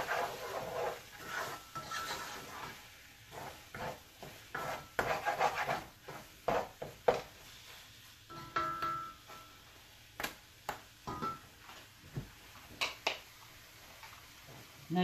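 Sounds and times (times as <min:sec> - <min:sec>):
wooden spoon scraping onions in pot: 0:00.0 - 0:07.8
spoon knocking against pot: 0:08.3 - 0:09.5.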